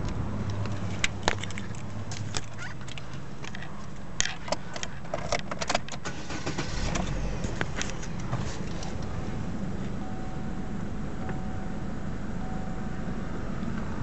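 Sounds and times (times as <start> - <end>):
car engine idling: 6.0 - 14.0.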